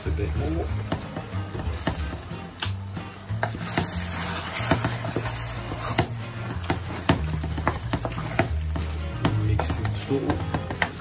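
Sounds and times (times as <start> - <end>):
hot pan hissing: 0.0 - 11.0
wooden spoon knocking pot: 0.4 - 2.4, 3.4 - 11.0.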